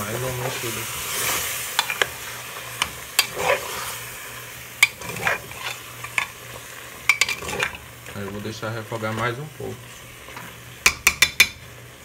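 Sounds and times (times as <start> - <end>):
food sizzling: 0.0 - 12.0
spoon clinking against metal pot: 7.1 - 7.7.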